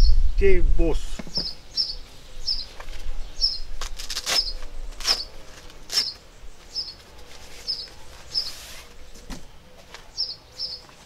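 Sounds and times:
bird chirping: 0:00.0 - 0:11.0
packaging rustling: 0:03.8 - 0:06.2.

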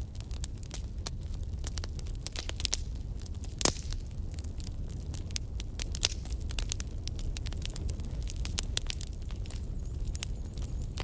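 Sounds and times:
logs crackling and popping: 0:00.0 - 0:11.0
low rumble of flames: 0:00.0 - 0:11.0.

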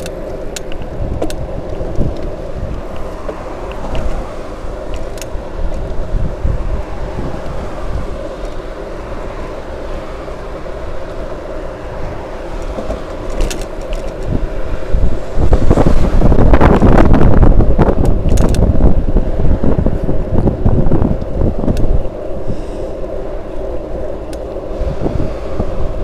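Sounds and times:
tyres rumbling on asphalt: 0:00.0 - 0:26.0
wind rushing over microphone: 0:00.0 - 0:26.0.

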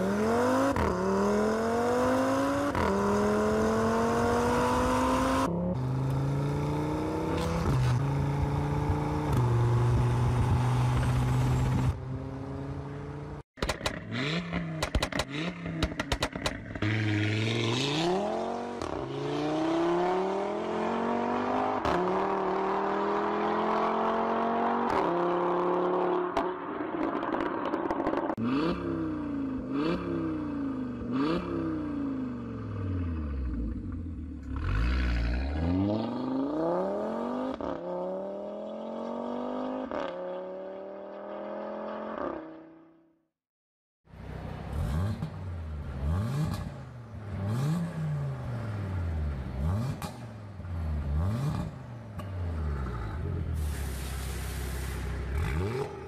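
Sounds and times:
car engine revving: 0:44.6 - 0:53.6, 0:55.3 - 0:56.0.

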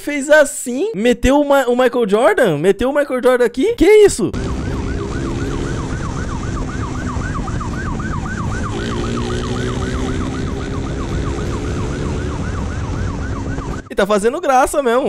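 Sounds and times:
motorcycle engine running: 0:04.3 - 0:13.9
police siren yelping: 0:04.3 - 0:13.9
rushing wind: 0:04.4 - 0:13.9.

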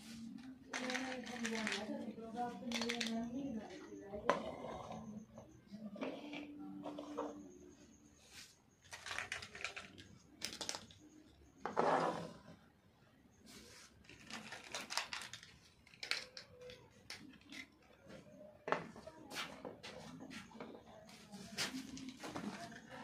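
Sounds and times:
plastic figurines clicking on table: 0:00.7 - 0:03.4, 0:08.9 - 0:11.1, 0:14.1 - 0:18.0.

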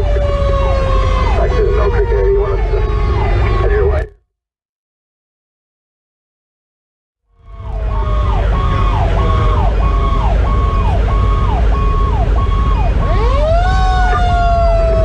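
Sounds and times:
fire engine siren wailing: 0:00.0 - 0:04.1, 0:07.3 - 0:15.0
road noise: 0:00.0 - 0:04.2, 0:07.3 - 0:15.0
truck engine rumble: 0:00.0 - 0:04.2, 0:07.3 - 0:15.0
second siren tone sweeping: 0:07.3 - 0:15.0.

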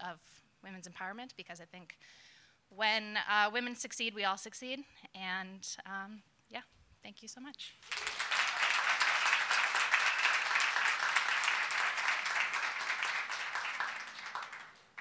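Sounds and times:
audience applause: 0:07.8 - 0:15.0.

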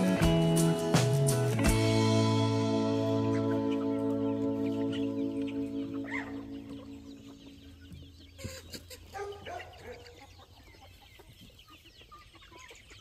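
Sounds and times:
background music: 0:00.0 - 0:08.3
chickens clucking: 0:02.4 - 0:13.0.

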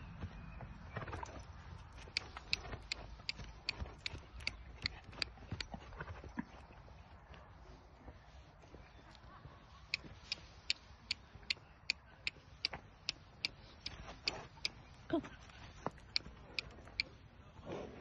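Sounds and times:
horse hooves clip-clopping on dirt: 0:00.0 - 0:11.6.

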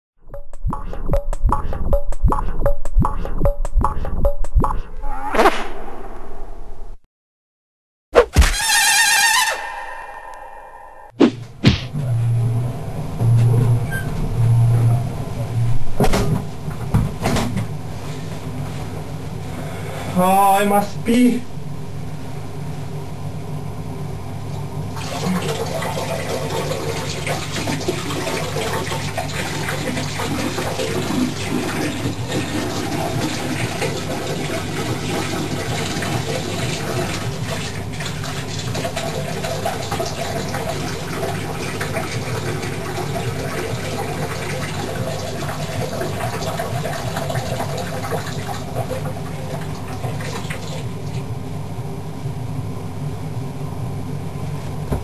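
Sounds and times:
low steady hum: 0:09.8 - 0:55.0
urine stream into toilet water: 0:25.0 - 0:51.3.

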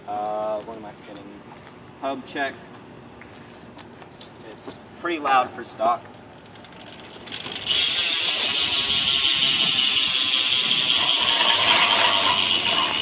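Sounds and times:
bicycle hub pawls clicking: 0:05.8 - 0:13.0.

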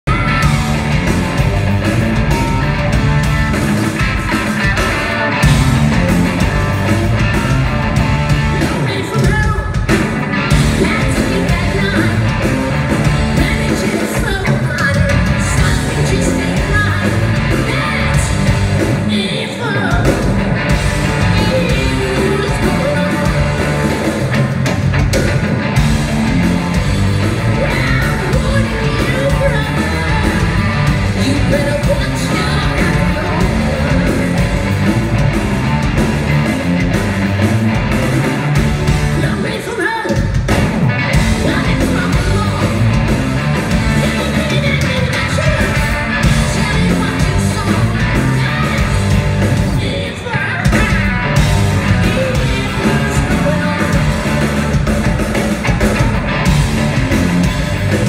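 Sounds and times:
live rock band playing: 0:00.0 - 0:58.0
man singing: 0:21.2 - 0:23.7, 0:27.6 - 0:34.4, 0:43.9 - 0:49.0, 0:51.8 - 0:54.5.

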